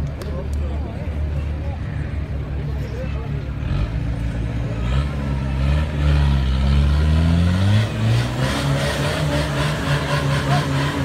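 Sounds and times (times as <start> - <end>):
buggy engine revving hard: 3.6 - 11.0.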